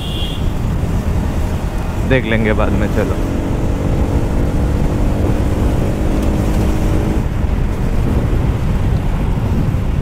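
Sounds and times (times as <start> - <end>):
wind rumble on microphone: 3.0 - 10.0.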